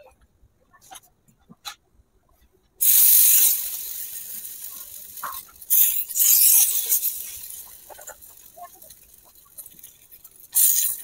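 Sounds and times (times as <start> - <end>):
batter sizzling in hot pan: 2.8 - 11.0.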